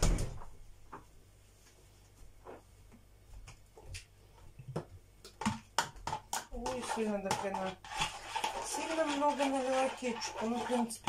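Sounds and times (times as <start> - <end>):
kitchen items clicking and knocking: 4.6 - 11.0.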